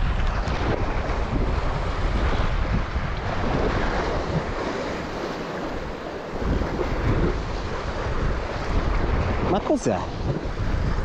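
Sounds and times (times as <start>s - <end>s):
sea waves washing: 0.0s - 11.0s
wind buffeting microphone: 0.0s - 11.0s.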